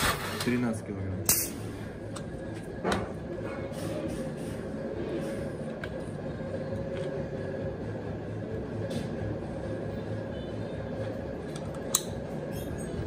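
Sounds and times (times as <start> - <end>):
workshop hum: 0.0 - 13.0.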